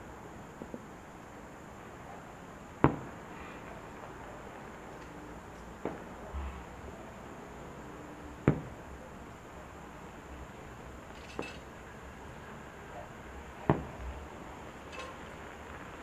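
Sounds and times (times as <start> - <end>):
firework shells booming: 2.8 - 3.3, 8.4 - 8.8, 13.6 - 14.2.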